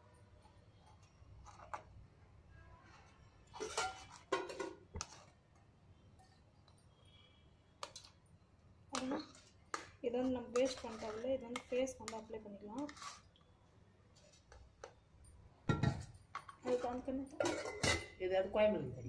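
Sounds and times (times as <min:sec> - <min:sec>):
spoon scraping a strainer: 0:02.9 - 0:05.4, 0:09.0 - 0:13.4.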